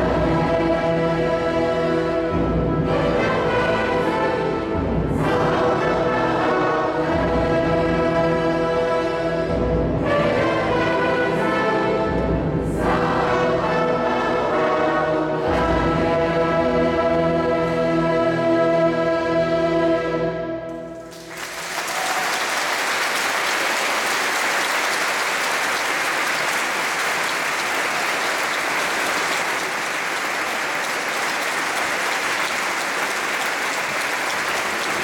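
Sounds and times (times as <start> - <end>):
wind band and choir chord: 0.0 - 21.3
audience applause: 21.1 - 35.0.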